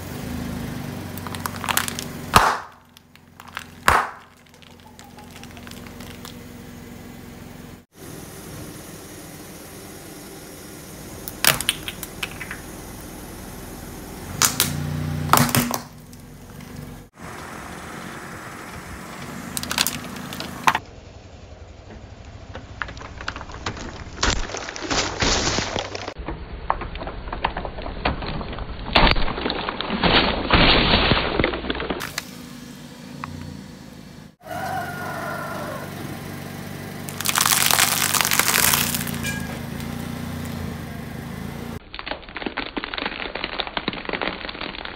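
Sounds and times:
car engine running: 0:00.0 - 0:24.2, 0:31.8 - 0:41.8
packet crunching: 0:01.2 - 0:06.4, 0:37.1 - 0:39.4, 0:41.8 - 0:44.9
plastic balls cracking: 0:01.2 - 0:06.4, 0:11.2 - 0:12.6, 0:14.4 - 0:16.3, 0:19.5 - 0:20.8, 0:22.6 - 0:32.2, 0:37.1 - 0:40.6, 0:41.8 - 0:44.9
plastic bottles bursting: 0:01.2 - 0:06.4, 0:11.2 - 0:12.7, 0:14.3 - 0:16.0, 0:22.9 - 0:32.3, 0:37.1 - 0:39.9, 0:41.8 - 0:44.9.

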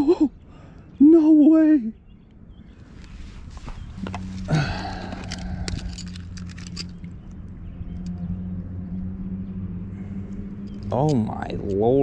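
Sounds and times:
clicks and rattles of handling: 0:04.9 - 0:07.1.

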